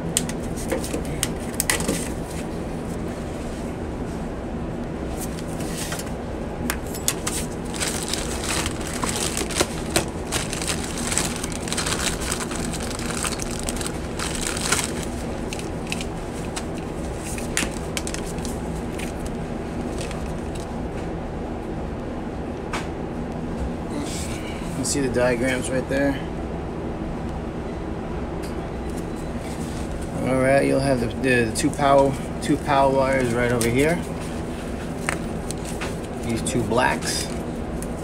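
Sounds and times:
clicks and crinkling of wires: 0:00.0 - 0:02.4, 0:05.2 - 0:20.8, 0:33.1 - 0:38.0
low machinery hum: 0:00.0 - 0:38.0.

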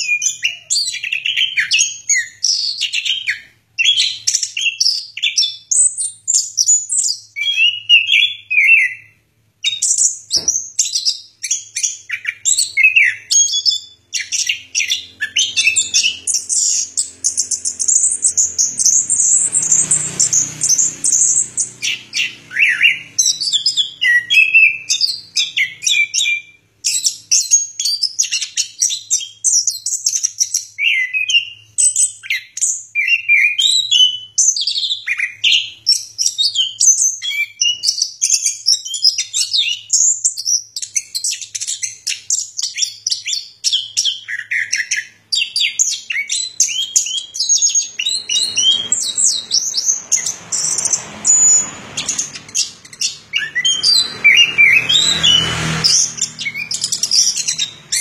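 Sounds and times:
thrush singing high whistles: 0:44.3 - 0:58.0.

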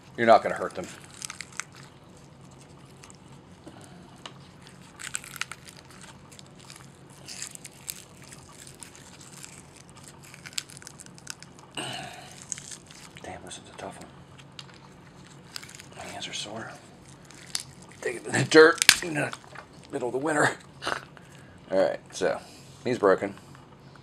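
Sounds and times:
bulb scales crackling and snapping: 0:00.5 - 0:03.2, 0:04.2 - 0:13.3, 0:14.3 - 0:16.3, 0:16.9 - 0:20.0.

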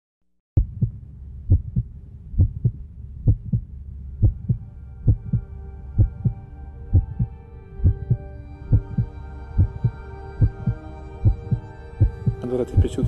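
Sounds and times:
heartbeat thumps: 0:00.6 - 0:13.0
low drone: 0:01.0 - 0:13.0
synthesiser chords: 0:04.1 - 0:13.0.

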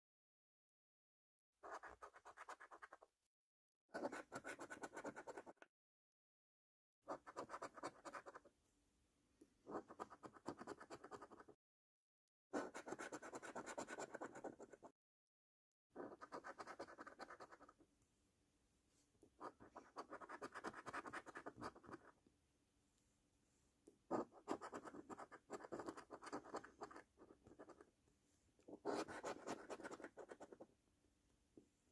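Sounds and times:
scratchcard scraping: 0:16.0 - 0:17.7, 0:19.4 - 0:22.1, 0:24.1 - 0:27.9, 0:28.7 - 0:30.7.

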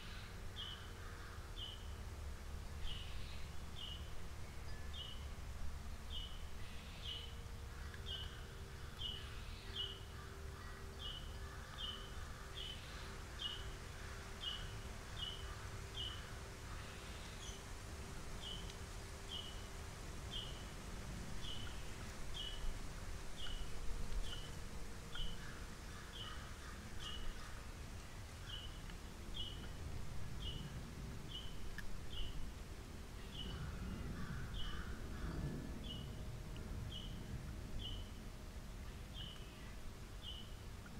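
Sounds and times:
low background rumble: 0:00.0 - 0:40.9
faint bird calls: 0:33.2 - 0:36.1.

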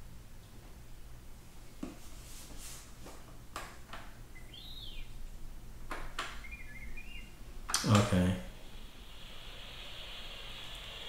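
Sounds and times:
electronic whistle rising and falling: 0:04.4 - 0:05.1, 0:06.4 - 0:07.3, 0:08.6 - 0:11.0.

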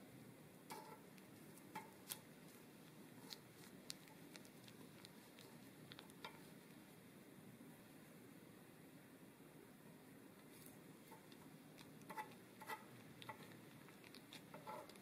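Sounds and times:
metal spatula scraping and tapping: 0:00.7 - 0:01.0, 0:01.7 - 0:02.2, 0:05.4 - 0:06.5, 0:11.1 - 0:13.6, 0:14.3 - 0:15.0.

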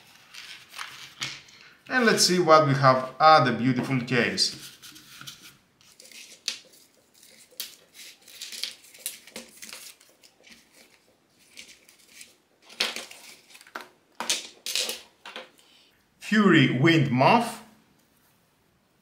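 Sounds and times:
packaging rustling and crinkling: 0:04.7 - 0:14.0.

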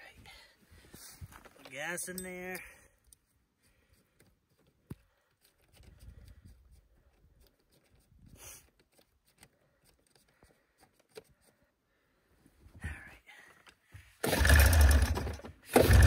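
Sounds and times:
faint clicks and handling noises: 0:01.2 - 0:11.7.

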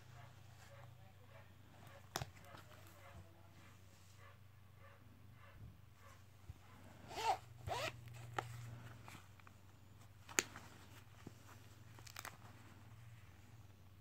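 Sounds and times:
light clicks and handling sounds: 0:00.2 - 0:04.0, 0:06.0 - 0:14.0
zipper pulled open: 0:06.8 - 0:09.2.

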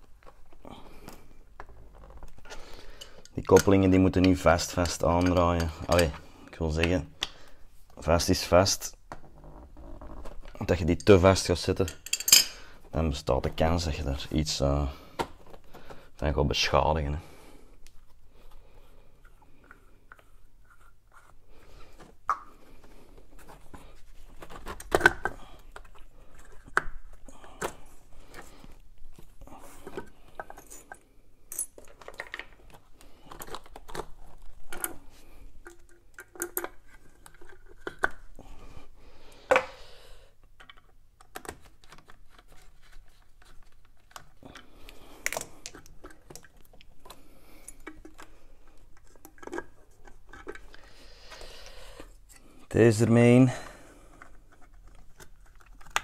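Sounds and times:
metal fittings clinking and knocking: 0:03.0 - 0:06.2, 0:10.8 - 0:12.6.

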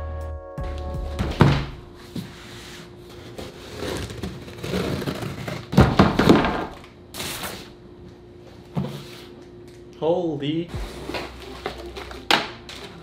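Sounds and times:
cardboard rustling and scraping: 0:02.0 - 0:06.6.

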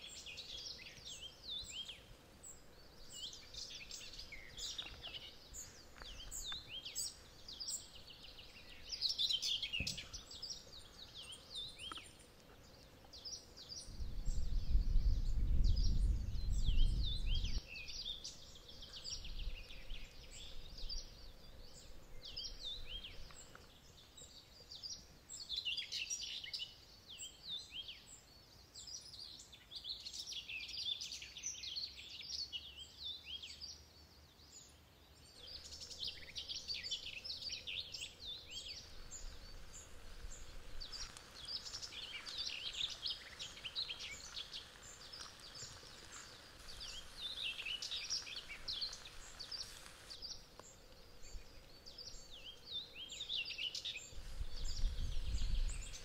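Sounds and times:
small birds chirping: 0:00.0 - 0:56.0
deep rumble: 0:14.0 - 0:17.6.

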